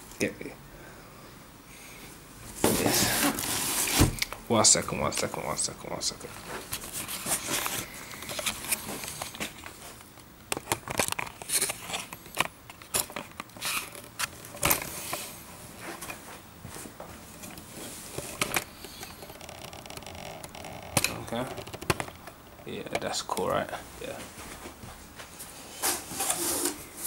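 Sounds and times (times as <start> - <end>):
camera handling rustling: 6.6 - 15.2, 17.4 - 22.5
sharp clicks and knocks: 18.2 - 23.1.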